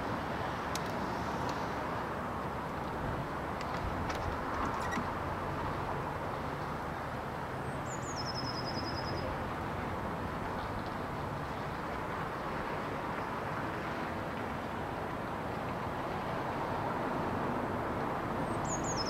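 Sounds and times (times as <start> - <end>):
outdoor background rumble: 0.0 - 8.0
songbird call with trill: 7.9 - 9.3, 18.6 - 19.0.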